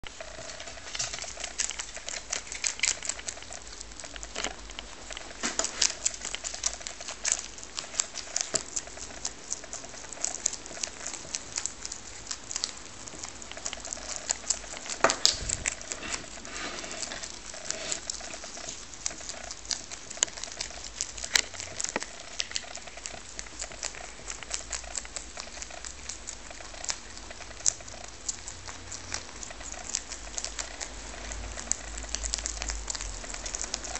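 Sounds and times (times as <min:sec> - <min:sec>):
rabbits chewing cabbage leaves: 0:00.0 - 0:33.9.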